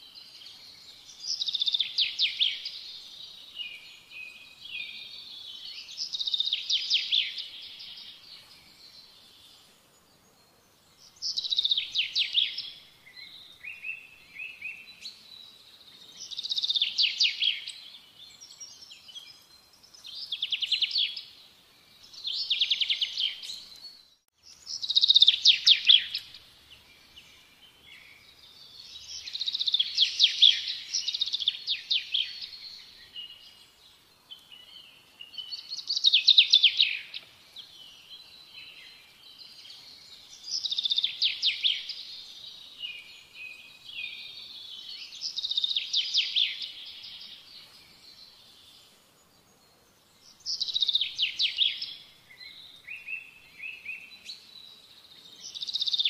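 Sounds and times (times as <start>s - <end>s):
songbird trilling: 24.6s - 26.4s.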